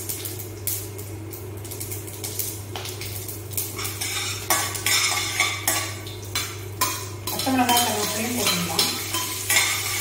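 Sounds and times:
steady low hum: 0:00.0 - 0:10.0
metal spoon scraping steel pan: 0:03.8 - 0:10.0.

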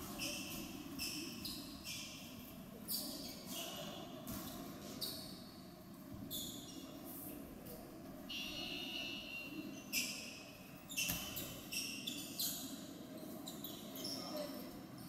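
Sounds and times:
sneakers squeaking on hardwood: 0:00.0 - 0:02.3, 0:10.9 - 0:14.4
low murmur in gym: 0:00.0 - 0:15.0.

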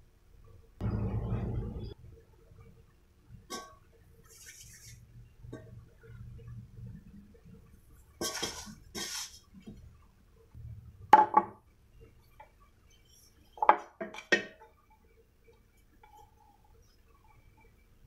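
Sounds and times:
scraping in a steel bowl: 0:08.2 - 0:09.5.

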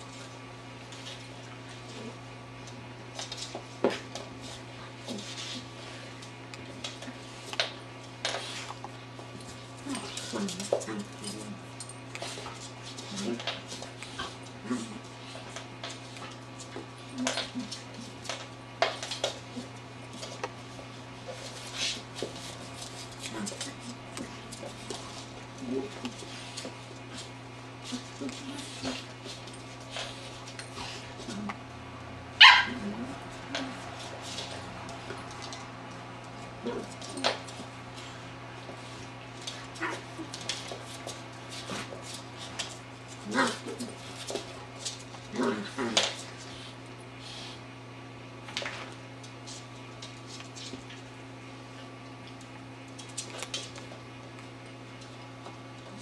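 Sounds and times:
dog yelp: 0:32.4 - 0:32.8
dog claws clicking on wooden floor: 0:52.2 - 0:55.6.

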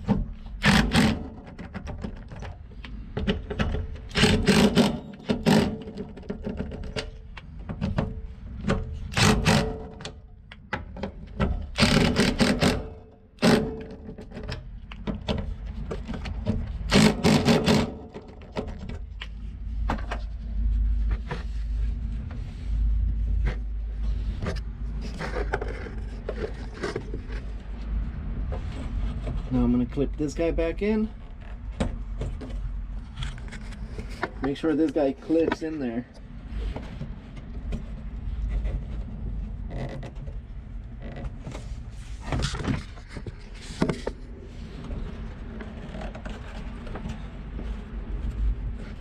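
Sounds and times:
low steady rumble: 0:18.9 - 0:49.0.

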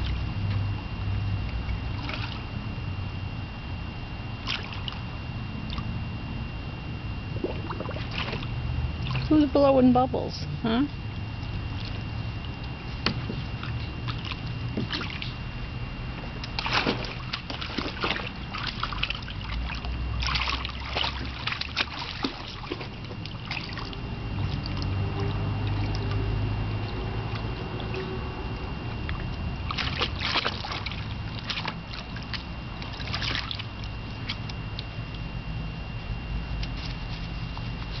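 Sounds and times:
water splashing in wading pool: 0:01.4 - 0:02.6, 0:04.4 - 0:05.9, 0:07.3 - 0:09.7, 0:11.4 - 0:15.5, 0:16.3 - 0:35.1.

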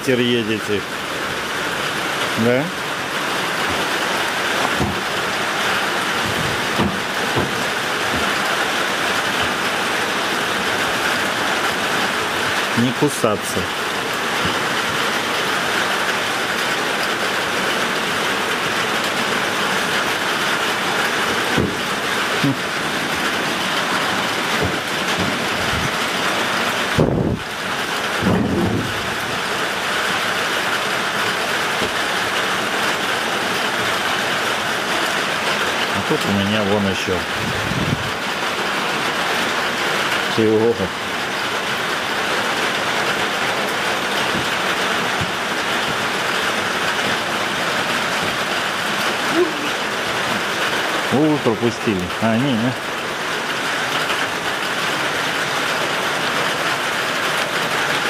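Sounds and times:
rain pouring: 0:00.0 - 0:58.0
soft low knocks: 0:04.5 - 0:08.7, 0:21.5 - 0:26.0.

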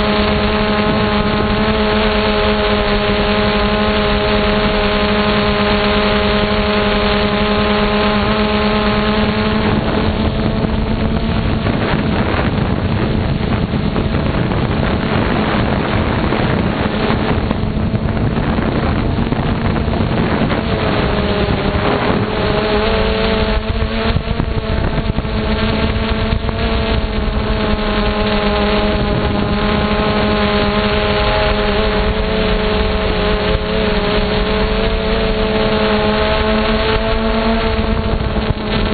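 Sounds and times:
drone motors humming: 0:00.0 - 0:38.9
wind rushing over microphone: 0:00.0 - 0:38.9.

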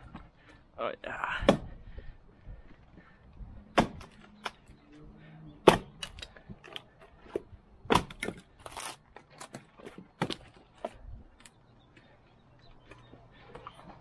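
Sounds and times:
maul striking wood: 0:01.4 - 0:01.7, 0:03.7 - 0:04.6, 0:05.6 - 0:06.2, 0:07.3 - 0:08.5
wood cracking as it splits: 0:05.6 - 0:11.6.

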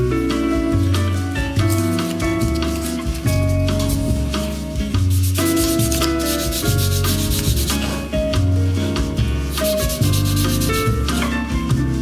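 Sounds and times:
instrumental background music: 0:00.0 - 0:12.0
sandpaper rasping on leather: 0:02.8 - 0:08.0, 0:09.5 - 0:11.2.

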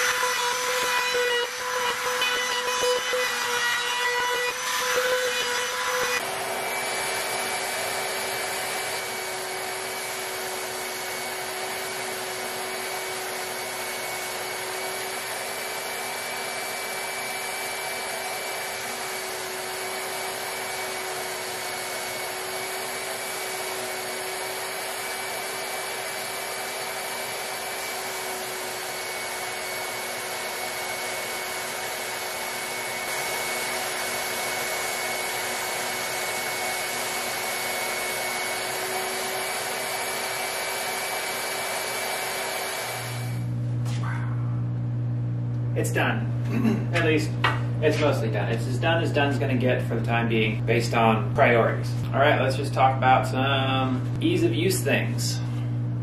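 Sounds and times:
machine humming: 0:00.0 - 0:56.0
machine whining: 0:00.0 - 0:56.0.

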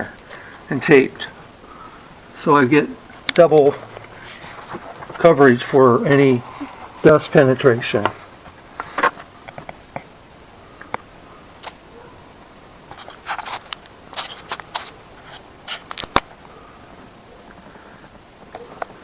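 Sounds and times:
foil insulation crinkling: 0:12.9 - 0:16.3.

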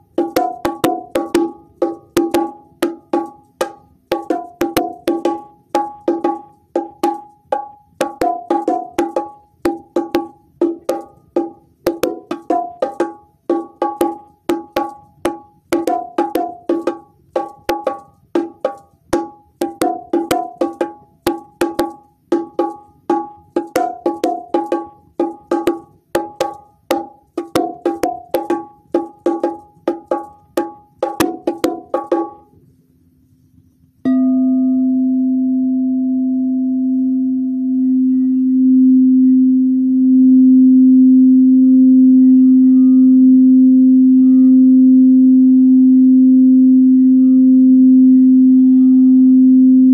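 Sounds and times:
bongo drums played by hand: 0:00.0 - 0:32.6.

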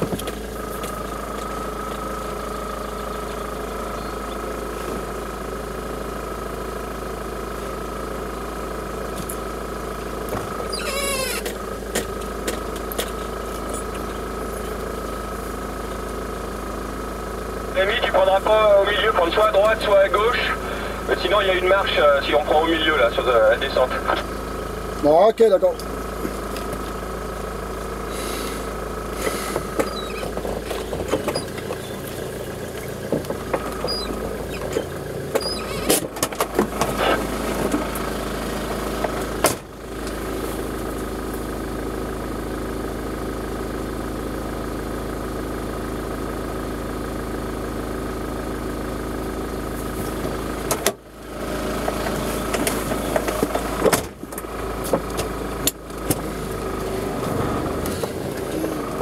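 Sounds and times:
off-road vehicle engine running: 0:00.0 - 0:59.0.

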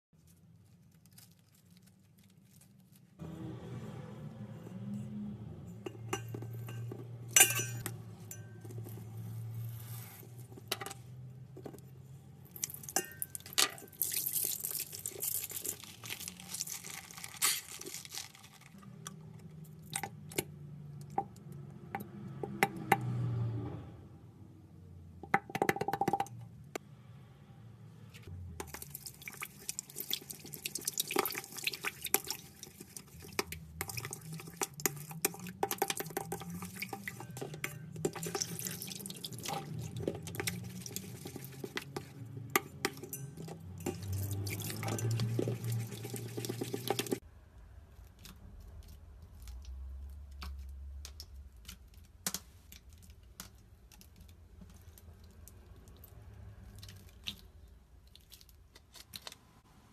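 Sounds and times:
plastic spoon stirring and tapping: 0:04.6 - 0:16.2, 0:25.2 - 0:26.5, 0:28.6 - 0:47.2
water dripping into steel bowl: 0:05.8 - 0:08.8, 0:12.5 - 0:15.8, 0:28.6 - 0:47.2.

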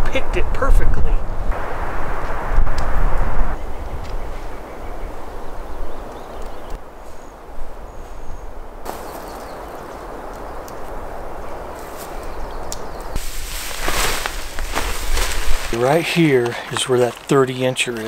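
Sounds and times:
rushing hiss: 0:13.2 - 0:15.8.

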